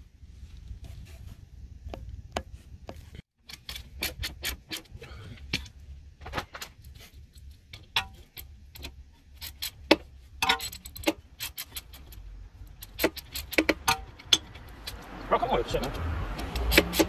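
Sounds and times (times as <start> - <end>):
hand ratchet clicking: 7.8 - 15.1, 15.8 - 17.0.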